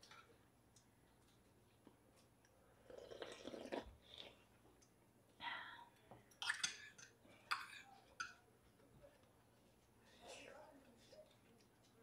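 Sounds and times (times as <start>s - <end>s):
chewing: 0.8s - 4.9s
slurping soup: 2.8s - 4.5s.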